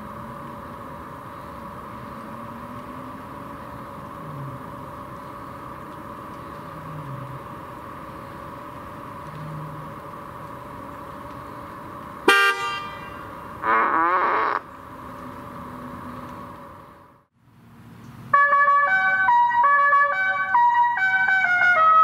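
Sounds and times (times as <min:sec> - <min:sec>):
steady background hum: 0:00.0 - 0:13.7
car horn tooting: 0:12.3 - 0:14.6.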